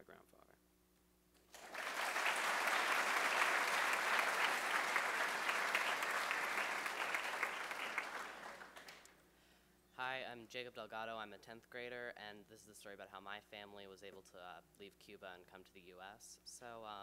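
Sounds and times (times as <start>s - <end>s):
audience applauding: 1.5s - 9.1s.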